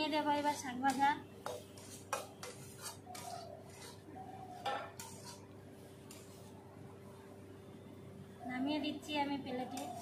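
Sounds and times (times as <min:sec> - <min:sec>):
metal spatula scraping a wok: 0:00.0 - 0:06.7, 0:09.6 - 0:10.0.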